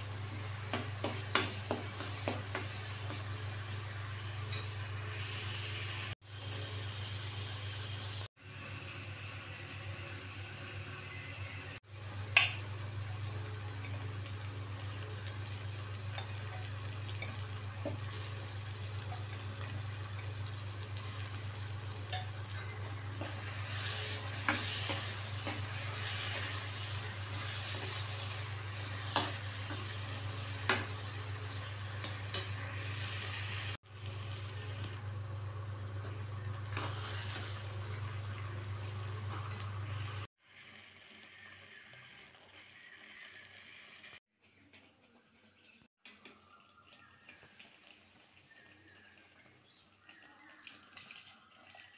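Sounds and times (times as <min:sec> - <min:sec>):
spices sizzling in a pan: 0:00.0 - 0:44.2, 0:46.4 - 0:50.6
metal spoon scraping a pan: 0:22.1 - 0:31.1.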